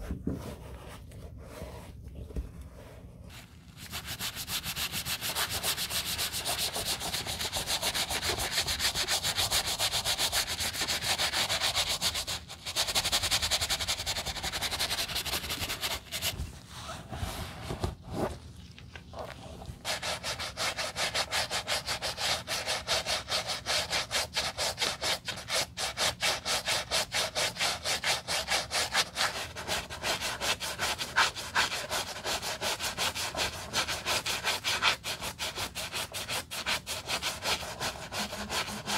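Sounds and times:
brush scrubbing rubber sole: 0:26.7 - 0:38.9.

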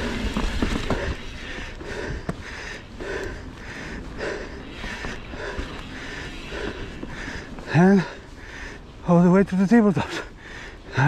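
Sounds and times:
wind and tyre rumble: 0:00.0 - 0:11.0
person panting hard: 0:00.8 - 0:09.0, 0:10.2 - 0:11.0.

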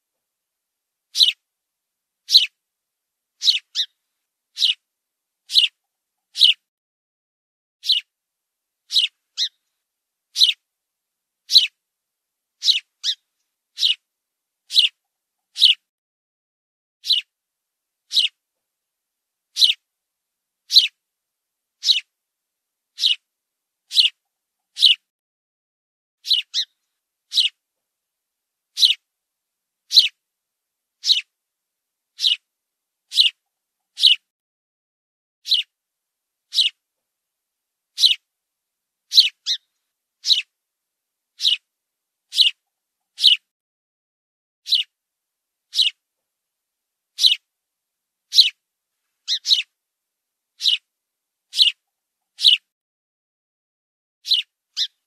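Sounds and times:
sparrow chirping: 0:01.1 - 0:01.4, 0:02.2 - 0:02.6, 0:03.4 - 0:04.8, 0:05.5 - 0:06.6, 0:07.8 - 0:08.1, 0:08.9 - 0:09.6, 0:10.3 - 0:10.6, 0:11.4 - 0:11.8, 0:12.6 - 0:14.1, 0:14.7 - 0:15.8, 0:17.0 - 0:17.3, 0:18.1 - 0:18.4, 0:19.5 - 0:19.8, 0:20.7 - 0:21.0, 0:21.8 - 0:22.1, 0:22.9 - 0:23.3, 0:23.9 - 0:25.1, 0:26.2 - 0:27.6, 0:28.7 - 0:29.0, 0:29.9 - 0:30.2, 0:31.0 - 0:31.3, 0:32.1 - 0:32.5, 0:33.1 - 0:34.3, 0:35.4 - 0:35.7, 0:36.5 - 0:36.8, 0:37.9 - 0:38.3, 0:39.1 - 0:40.5, 0:41.4 - 0:41.7, 0:42.3 - 0:43.5, 0:44.6 - 0:45.0, 0:45.7 - 0:46.0, 0:47.2 - 0:47.5, 0:48.3 - 0:48.6, 0:49.2 - 0:49.7, 0:50.6 - 0:50.9, 0:51.5 - 0:52.7, 0:54.2 - 0:55.0.

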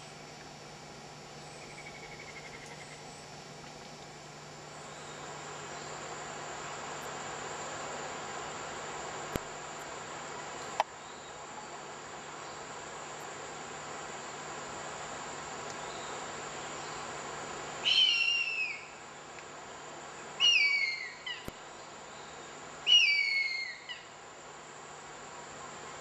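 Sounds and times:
rainforest insects humming: 0:00.0 - 0:26.0
eagle wailing calls: 0:17.9 - 0:18.8, 0:20.4 - 0:21.4, 0:22.9 - 0:24.0.

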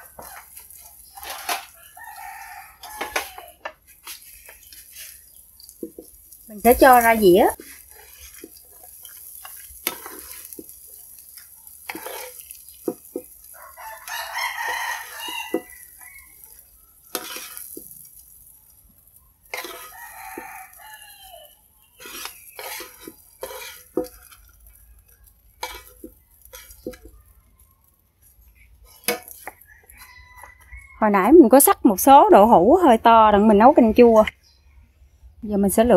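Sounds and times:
rooster crowing: 0:00.0 - 0:03.7, 0:13.5 - 0:17.6, 0:19.6 - 0:21.6, 0:29.4 - 0:31.3
metal spatula scraping a pan: 0:00.0 - 0:18.8, 0:19.4 - 0:27.2, 0:28.2 - 0:30.5.

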